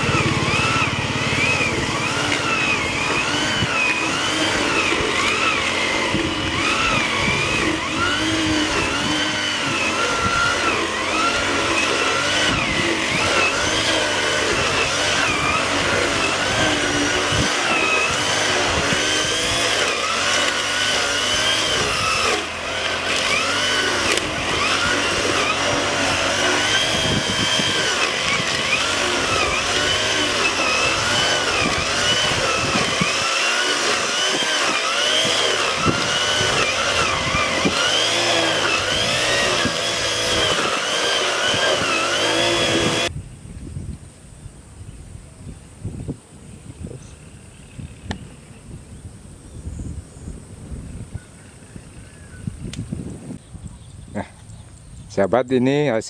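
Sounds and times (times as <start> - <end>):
brush cutter engine running: 0.0 - 43.1.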